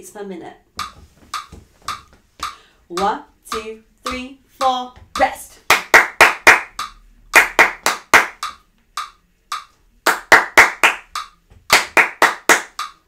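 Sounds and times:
metronome ticking: 0.6s - 13.0s
hand claps: 5.2s - 13.0s.

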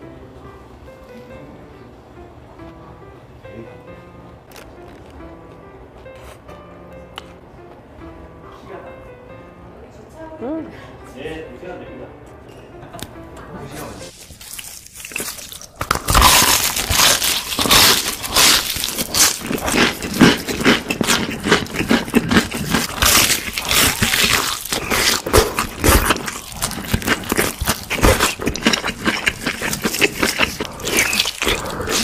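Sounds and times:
crunching fried chicken: 14.1s - 32.0s.

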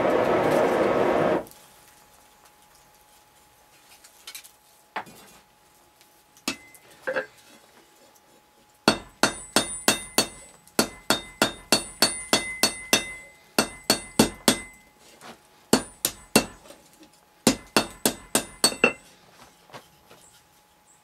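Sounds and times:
hammer striking hot iron on anvil: 6.5s - 6.8s, 8.9s - 14.9s, 15.7s - 16.6s, 17.4s - 19.0s.

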